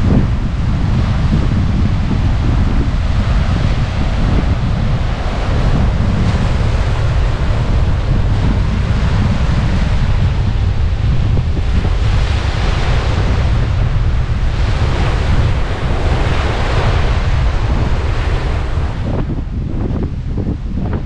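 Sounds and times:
waves breaking on shore: 0.0 - 21.0
wind buffeting microphone: 0.0 - 21.0.

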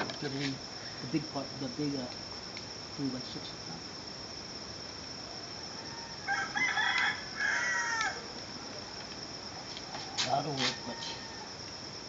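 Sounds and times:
crickets chirring: 0.0 - 12.0
rooster crowing: 5.6 - 8.3, 9.8 - 11.6.

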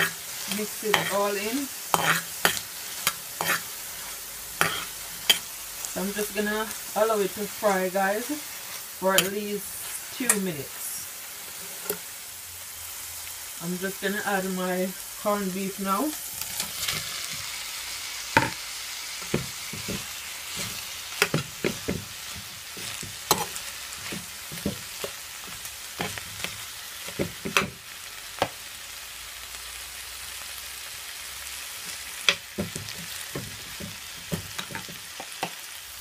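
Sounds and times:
utensil scraping a pot: 0.0 - 5.5
meat sizzling in hot oil: 0.0 - 36.0.

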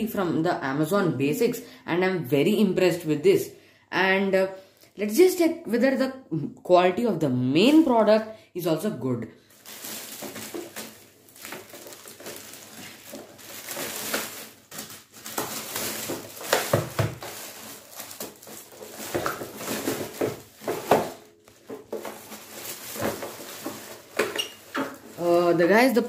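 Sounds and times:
plastic bag crinkling: 9.4 - 26.0.

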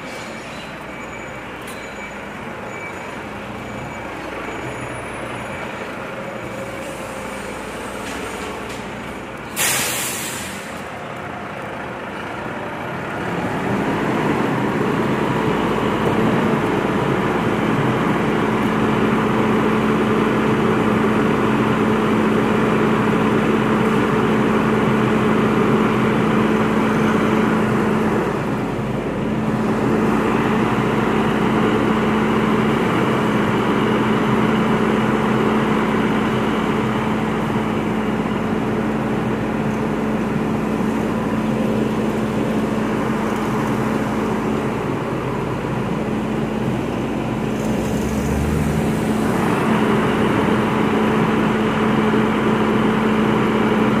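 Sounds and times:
truck diesel engine running: 0.0 - 54.0
air brake hiss: 9.5 - 10.9.

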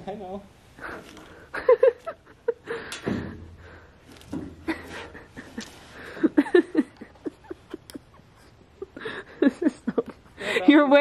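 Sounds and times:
people laughing: 0.8 - 3.0, 4.6 - 10.7.

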